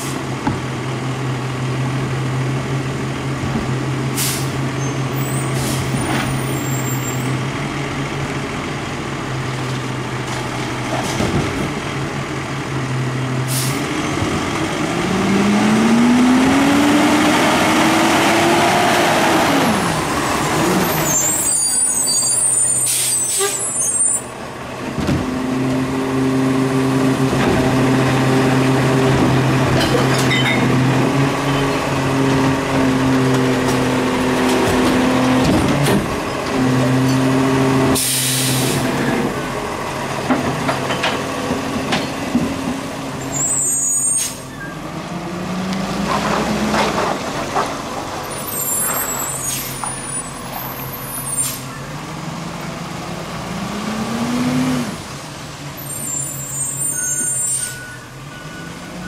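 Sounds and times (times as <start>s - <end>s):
garbage truck engine: 0.0s - 59.0s
air brake hiss: 4.2s - 4.6s, 13.5s - 13.8s, 22.7s - 23.7s, 38.0s - 38.9s
engine revving: 13.9s - 21.0s, 52.2s - 55.1s.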